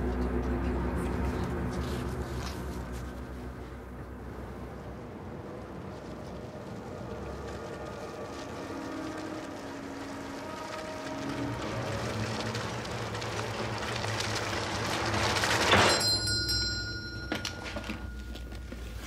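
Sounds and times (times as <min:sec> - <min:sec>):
rushing noise: 0:00.9 - 0:16.0
small bell ringing: 0:15.8 - 0:18.7.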